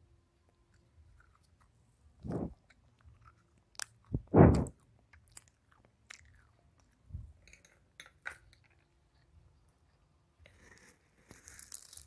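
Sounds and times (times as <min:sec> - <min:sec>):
person chewing crunchy food: 0:00.7 - 0:07.0.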